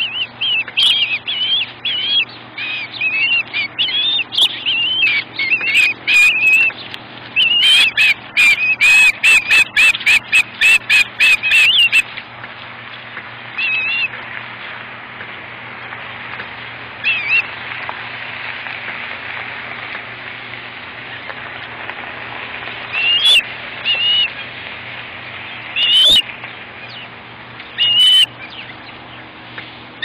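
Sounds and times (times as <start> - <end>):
ospreys chirping: 0.0 - 12.2, 13.5 - 14.2, 17.0 - 17.6, 22.6 - 30.0.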